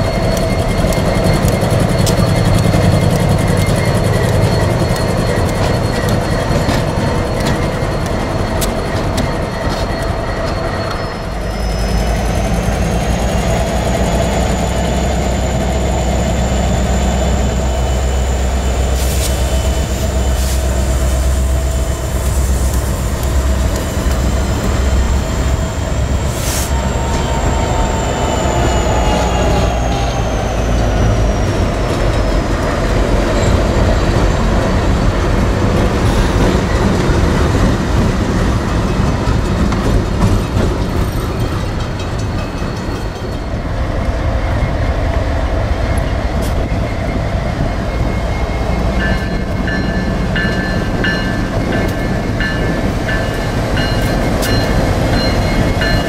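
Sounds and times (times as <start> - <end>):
high squeal sliding down: 0.0 - 22.2, 22.9 - 34.4
high pulsing tones: 0.0 - 34.4
freight train rumbling on rails: 0.0 - 56.0.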